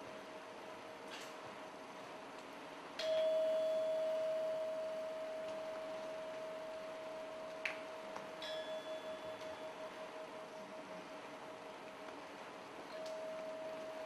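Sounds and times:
struck metal bell-like ringing: 0:03.0 - 0:10.8.

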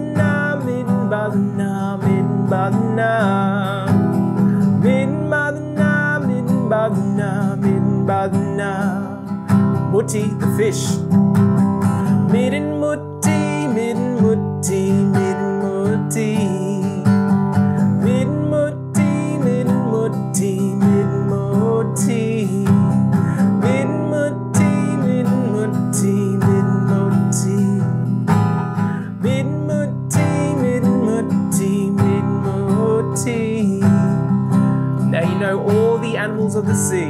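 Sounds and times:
acoustic guitar strumming: 0:00.0 - 0:37.0
man singing: 0:00.0 - 0:37.0.

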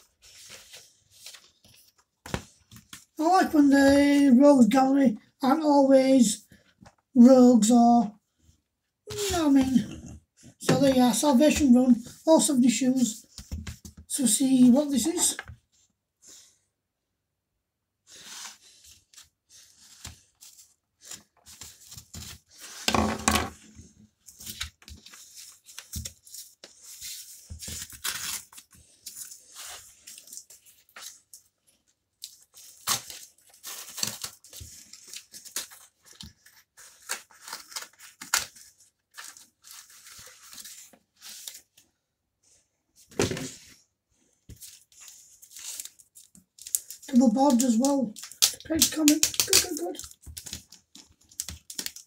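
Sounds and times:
cardboard envelope ripping: 0:24.4 - 0:31.2, 0:32.3 - 0:41.6.

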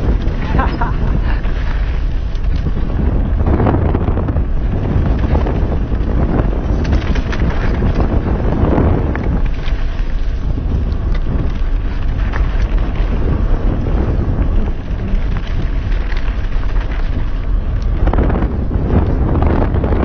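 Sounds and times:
tyres clicking on loose gravel: 0:00.0 - 0:20.0
wind rushing over microphone: 0:00.0 - 0:20.0.

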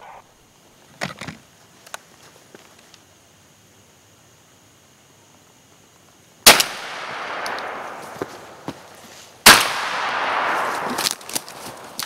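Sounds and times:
gunshots with echo: 0:09.4 - 0:11.0.

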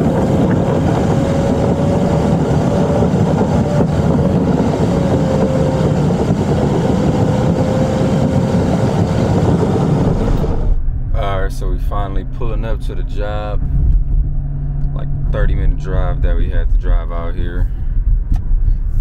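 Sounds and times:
car road and engine noise: 0:00.0 - 0:19.0.

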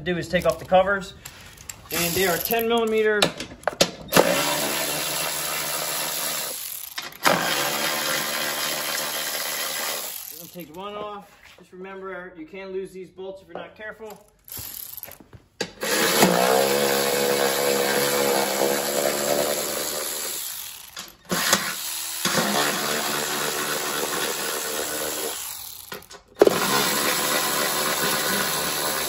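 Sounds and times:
electric ratchet running: 0:01.3 - 0:03.0, 0:04.1 - 0:10.8, 0:14.4 - 0:15.2, 0:15.8 - 0:29.0.

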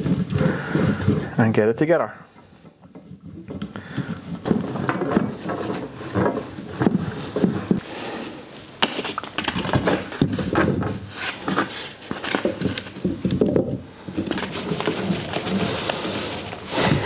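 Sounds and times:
wood knocking and scraping on clamps: 0:02.6 - 0:07.9, 0:08.8 - 0:17.0.

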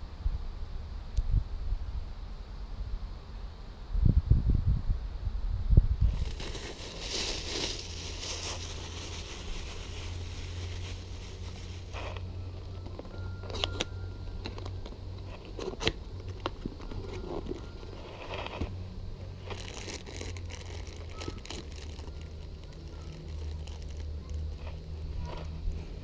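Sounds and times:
steady low hum: 0:00.0 - 0:26.0
plastic bag crinkling: 0:06.1 - 0:13.8, 0:19.3 - 0:24.8
cardboard box opening: 0:06.1 - 0:18.7.

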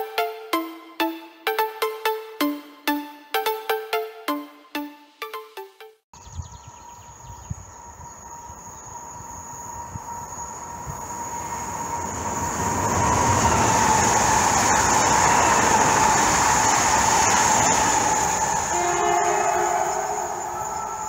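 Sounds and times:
electric train passing: 0:07.7 - 0:21.0.

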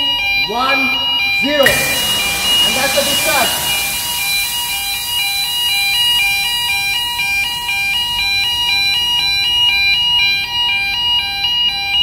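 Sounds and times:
two-tone electronic alarm: 0:01.6 - 0:06.1
gas discharge hissing: 0:01.6 - 0:07.5.

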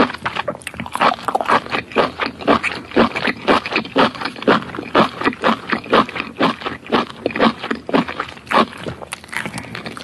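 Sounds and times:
wet chewing mouth sounds: 0:00.0 - 0:10.0.

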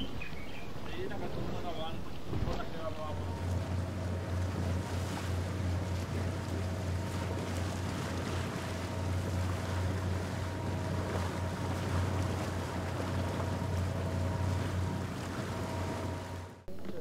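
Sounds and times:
outboard motor droning: 0:00.0 - 0:17.0
water rushing along hull: 0:00.0 - 0:17.0.

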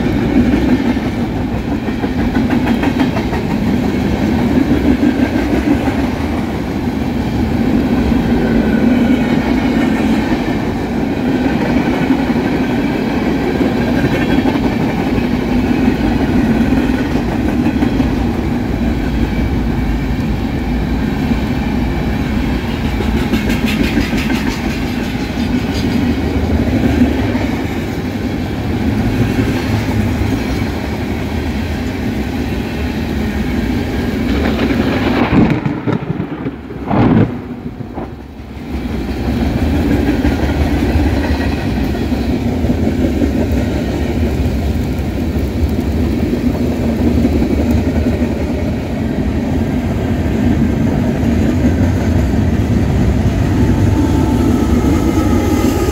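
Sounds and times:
freight train rumble: 0:00.0 - 0:55.9.

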